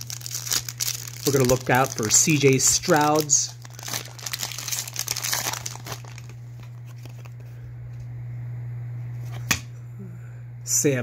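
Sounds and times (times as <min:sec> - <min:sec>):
wrapper crinkling: 0:00.0 - 0:07.4
low hum: 0:00.0 - 0:11.0.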